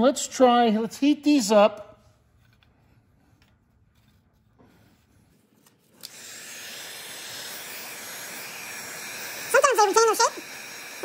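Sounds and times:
heat gun blowing hiss: 5.9 - 11.0.

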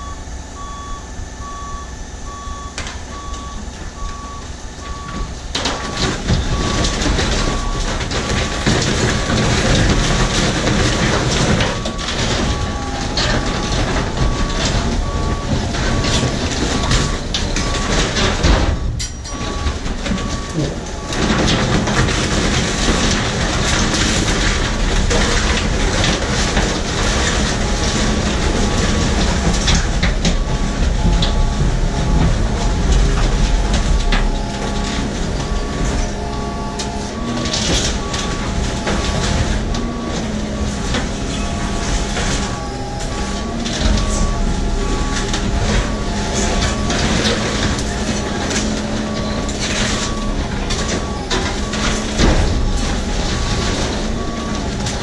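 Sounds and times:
truck engine and hydraulics running: 0.0 - 55.0
trash cracking and crunching: 2.3 - 55.0.

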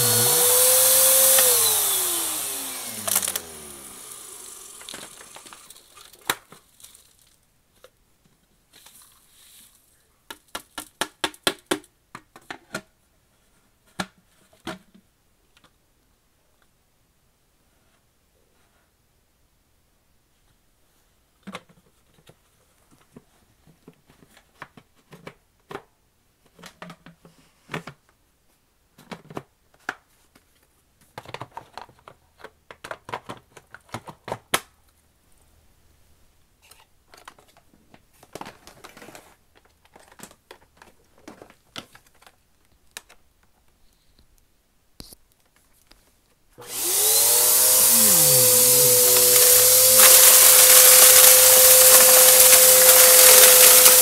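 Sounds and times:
vacuum cleaner motor whine: 0.0 - 5.8, 46.6 - 54.0.

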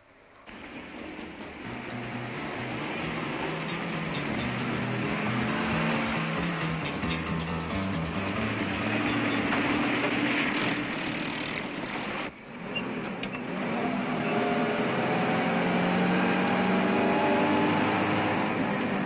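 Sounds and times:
jeep engine running: 0.6 - 12.3.

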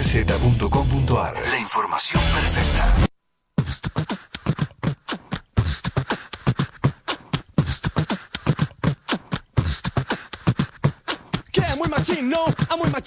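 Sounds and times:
beatbox clicks and thumps: 3.6 - 13.0.

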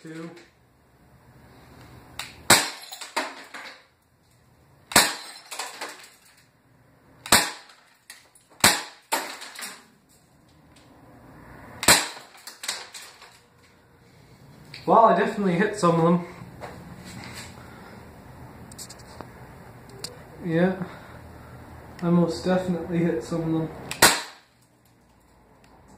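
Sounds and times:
air pistol cracks: 23.9 - 24.5.

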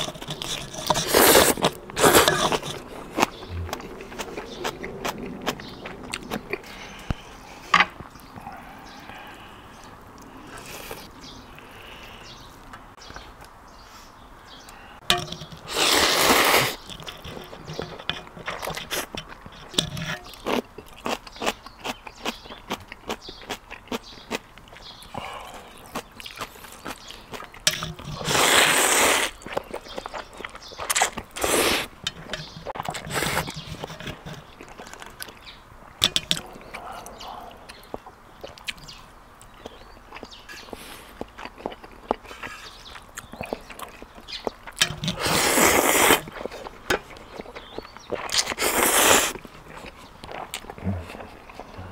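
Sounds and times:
person slurping noodles: 0.0 - 2.9, 15.7 - 16.8, 28.2 - 29.4, 31.0 - 31.9, 45.1 - 46.2, 48.4 - 49.4
small clicks and scrapes: 0.0 - 4.3, 15.1 - 21.1, 26.8 - 36.5
chewing: 0.0 - 13.5, 14.6 - 51.9.

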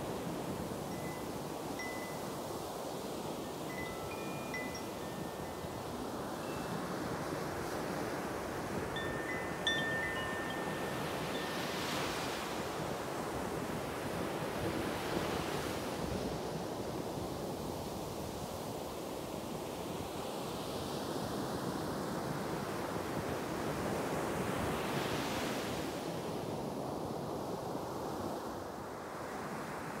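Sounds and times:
ocean surf breaking on beach: 0.0 - 18.3.

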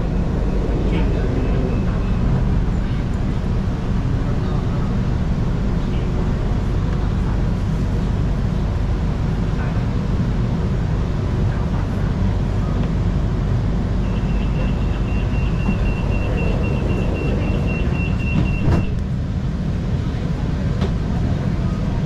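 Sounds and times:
ventilation and running rumble: 0.0 - 22.0
high warning beeps: 14.0 - 19.0.

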